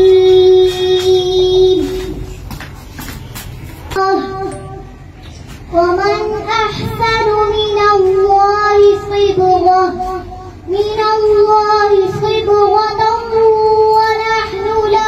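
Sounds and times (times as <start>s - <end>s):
girl reciting melodically: 0.0s - 2.8s, 3.8s - 15.0s.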